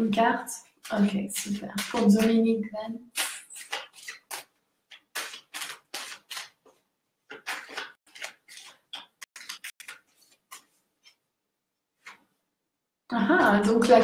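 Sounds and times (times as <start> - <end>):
cards being shuffled: 0.9 - 2.4, 3.1 - 11.2, 12.0 - 12.3.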